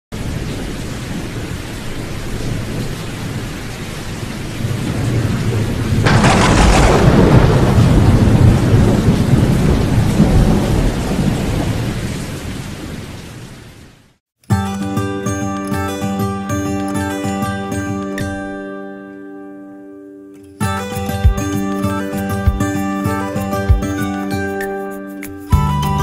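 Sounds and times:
thunder crack and rumble: 0.2s - 13.1s.

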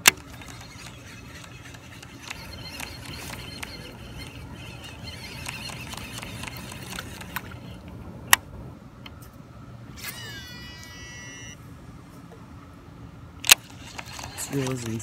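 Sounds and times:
fishing reel click: 0.0s - 7.8s, 13.5s - 15.0s
fishing reel brake whining: 0.0s - 7.9s, 10.0s - 11.6s, 13.5s - 15.0s
high ringing tones: 10.0s - 11.6s.

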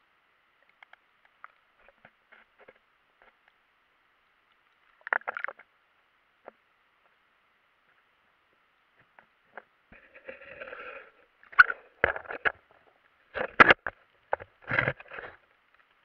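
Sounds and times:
underwater rustles: 0.6s - 3.6s, 8.9s - 16.0s
underwater clicks and knocks: 4.6s - 5.7s, 11.4s - 12.7s, 13.3s - 15.9s.

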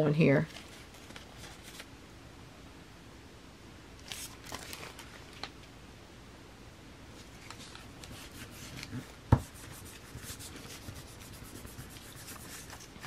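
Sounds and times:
hands rubbing tissue paper: 7.4s - 13.0s.

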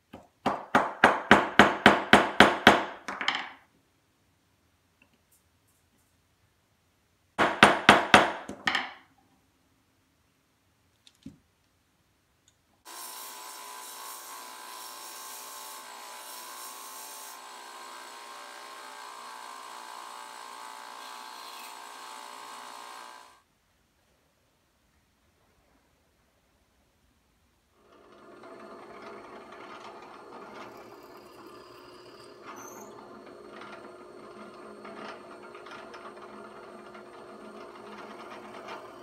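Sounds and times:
belt sander running: 12.9s - 23.4s, 27.8s - 39.0s
wood grinding on sander belt: 12.9s - 23.4s, 27.8s - 39.0s.

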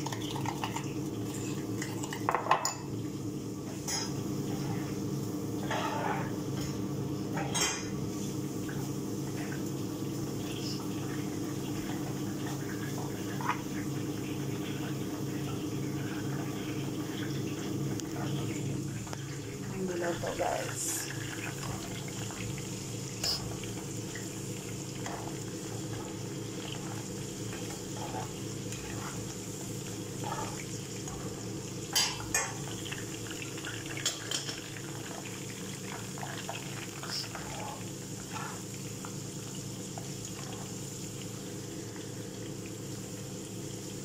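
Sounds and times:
vegetables sizzling in oil: 15.2s - 44.0s.

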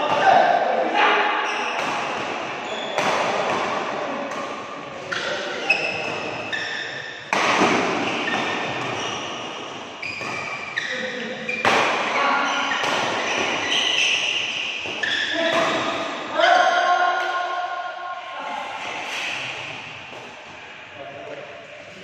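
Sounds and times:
shoes squeaking on court floor: 2.6s - 3.1s, 5.0s - 7.3s, 7.9s - 16.0s
racket striking shuttlecock: 7.3s - 10.7s.

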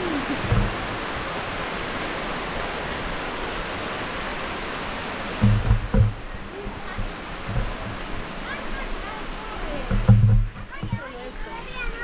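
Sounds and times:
fast river rushing: 0.0s - 12.0s
low thump: 0.3s - 0.8s, 5.4s - 6.2s, 6.9s - 8.1s, 9.8s - 11.1s.

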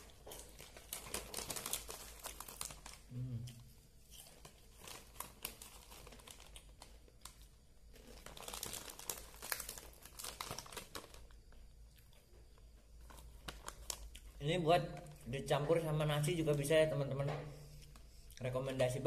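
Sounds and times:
plastic chip packet crinkling: 0.0s - 3.1s, 4.1s - 11.7s, 13.0s - 15.2s.

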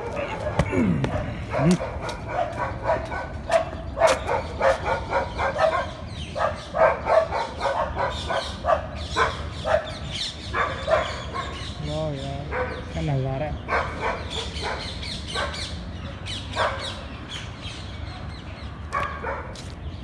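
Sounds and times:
dog barking rapidly: 0.0s - 11.8s, 12.4s - 13.0s, 13.6s - 15.8s, 16.5s - 17.0s, 18.9s - 19.6s.

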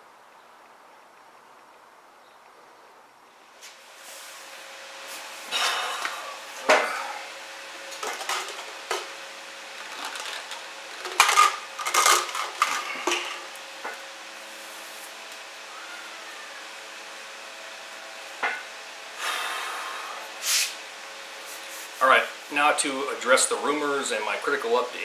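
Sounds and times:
faint steady hum: 0.0s - 25.0s
hard objects clinking and clattering: 7.9s - 9.1s, 9.7s - 13.5s.

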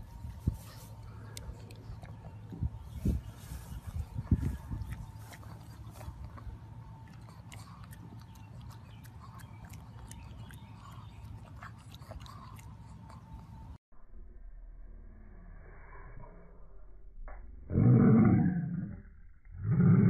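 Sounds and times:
dog chewing grass crunching: 0.0s - 13.7s
steady low rumble: 0.0s - 20.0s.

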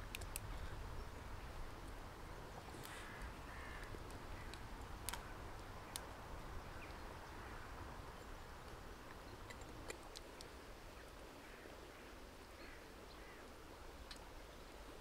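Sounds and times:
wood fire crackling: 1.5s - 6.6s
crow cawing: 3.0s - 3.9s.

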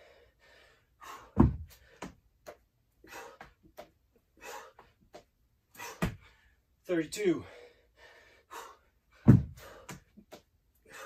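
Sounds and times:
person breathing heavily: 0.0s - 2.2s, 3.0s - 3.6s, 4.3s - 5.1s, 5.7s - 6.7s, 7.4s - 10.2s, 10.8s - 11.0s
dumbbells thudding onto floor: 1.3s - 1.7s, 9.2s - 9.8s.

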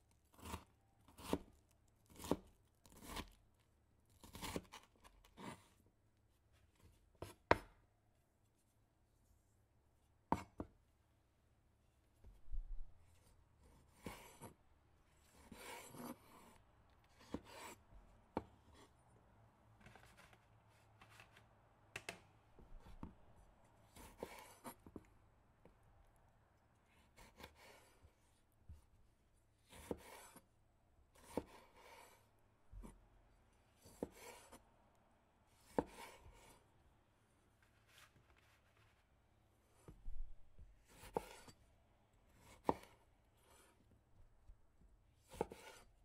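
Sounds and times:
knife slicing and scraping: 0.3s - 3.4s, 4.2s - 5.8s, 13.1s - 14.6s, 15.2s - 16.6s, 17.2s - 17.8s, 23.8s - 25.0s, 27.0s - 28.1s, 29.6s - 30.5s, 31.2s - 33.0s, 33.8s - 34.6s, 35.6s - 36.6s, 40.8s - 41.6s, 42.3s - 43.8s, 45.2s - 46.0s.

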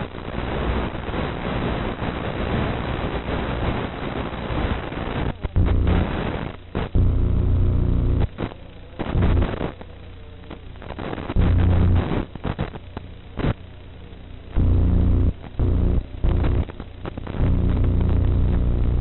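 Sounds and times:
static hiss and crackle: 0.0s - 19.0s
loud low buzzing: 4.9s - 9.7s, 10.5s - 13.6s, 14.3s - 19.0s.

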